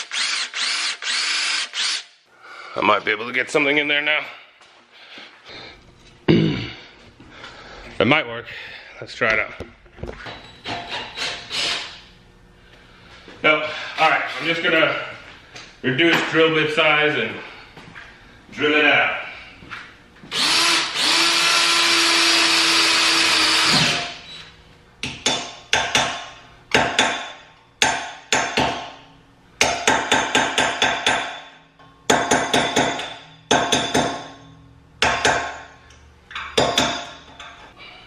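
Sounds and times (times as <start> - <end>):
power drill drilling: 0.0 - 2.1, 10.9 - 12.0, 20.3 - 24.3
hammer striking metal: 25.0 - 29.0, 29.6 - 35.7, 36.4 - 37.4.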